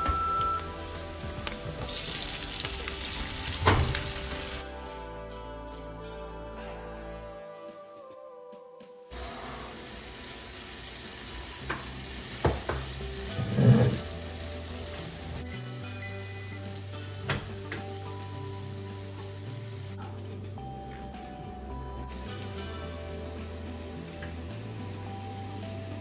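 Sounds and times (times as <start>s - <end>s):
vegetables sizzling in hot oil: 0.2s - 4.6s, 9.2s - 20.0s.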